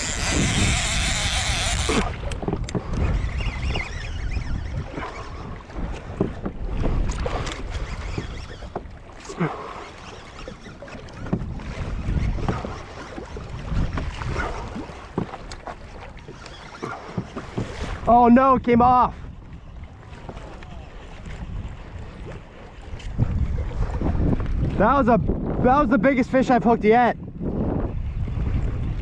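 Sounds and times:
fishing reel drag buzzing: 0:00.0 - 0:05.5, 0:07.1 - 0:08.9, 0:09.5 - 0:11.2, 0:16.2 - 0:17.5
water slapping: 0:00.0 - 0:29.0
wind on microphone: 0:00.0 - 0:29.0.

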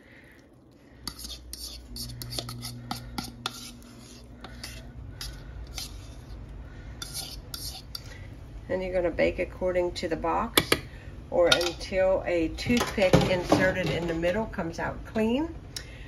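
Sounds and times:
low steady hum: 0:00.0 - 0:16.0
fork scraping batter from bowl: 0:01.0 - 0:08.3.

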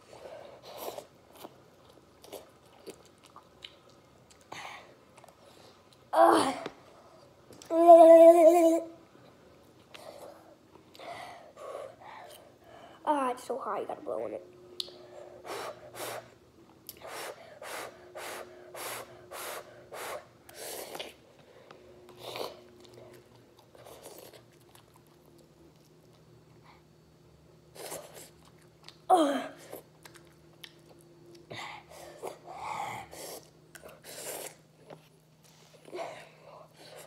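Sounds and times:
chewing: 0:00.6 - 0:04.5, 0:22.0 - 0:26.8, 0:27.8 - 0:29.1, 0:29.7 - 0:31.5
person blowing short puffs: 0:17.0 - 0:20.9
sniffing: 0:17.0 - 0:21.2.

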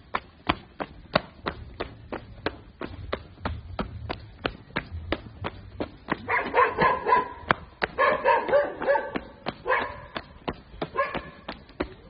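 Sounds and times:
footsteps on stony ground: 0:00.0 - 0:12.0
dog barking high-pitched: 0:06.2 - 0:10.2, 0:10.9 - 0:11.5.

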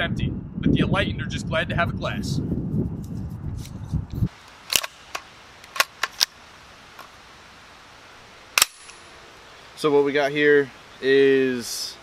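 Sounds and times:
wind buffeting microphone: 0:00.0 - 0:04.4
metallic clicks of gun handling: 0:04.7 - 0:06.4.

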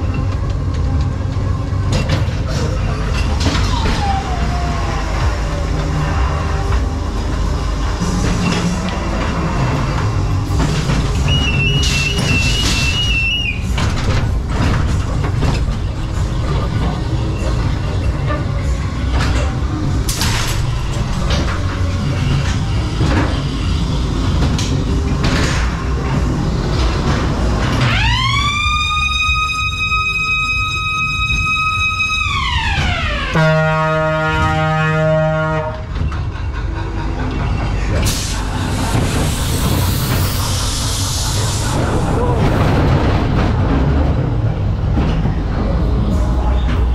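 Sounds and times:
loud ride music and effects: 0:00.0 - 0:46.9
ride car rumbling on track: 0:00.0 - 0:46.9
high whistle-like tone: 0:11.2 - 0:13.7.

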